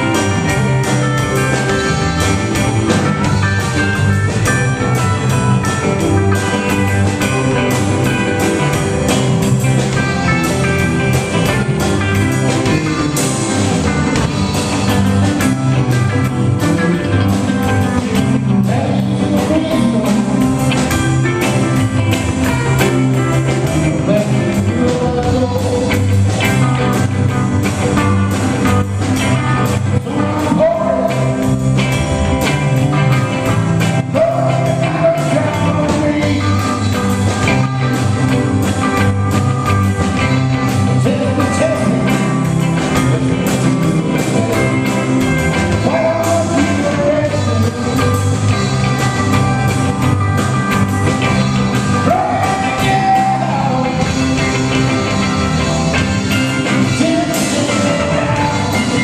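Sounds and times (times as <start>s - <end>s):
drum kit beat: 0.0s - 59.0s
electric guitars: 0.0s - 59.0s
man singing: 18.2s - 21.7s, 23.1s - 26.6s, 29.6s - 31.8s, 33.8s - 38.0s, 40.2s - 48.7s, 51.7s - 55.4s, 56.6s - 59.0s.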